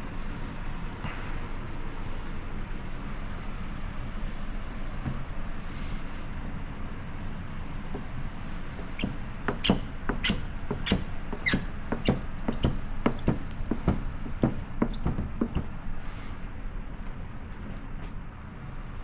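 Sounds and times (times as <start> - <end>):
plastic squeegee squeaking: 8.8 - 13.3, 14.7 - 15.7.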